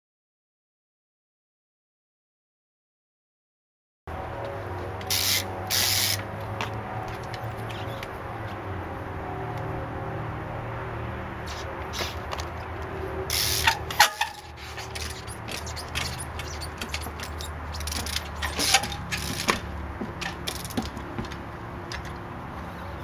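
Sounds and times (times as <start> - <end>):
bike rear hub ratcheting: 5.0 - 6.3, 13.3 - 22.2
bike creaks and knocks: 5.0 - 8.2, 13.3 - 22.2.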